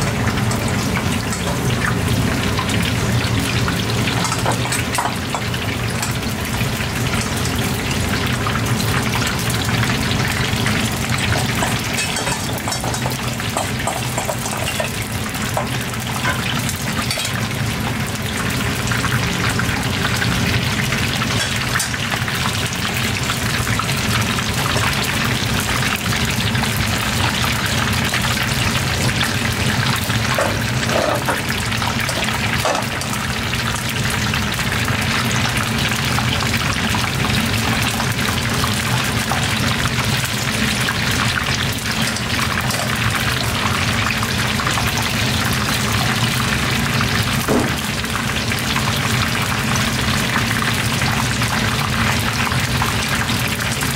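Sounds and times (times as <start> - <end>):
food sizzling in hot oil: 0.0 - 53.9.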